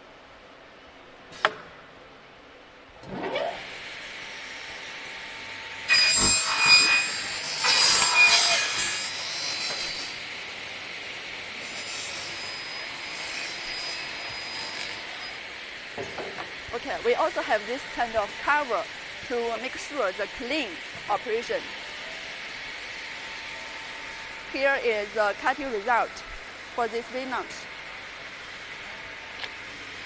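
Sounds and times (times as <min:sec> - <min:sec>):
saw motor whining: 0:05.8 - 0:10.4, 0:11.4 - 0:15.6
saw blades cutting plastic: 0:05.9 - 0:10.3.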